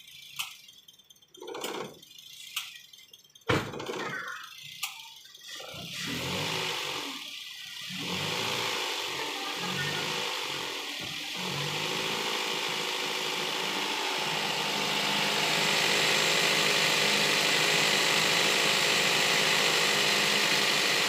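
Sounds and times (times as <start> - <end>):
gas hissing through gauges: 0.0 - 21.0
car engine running: 5.2 - 21.0.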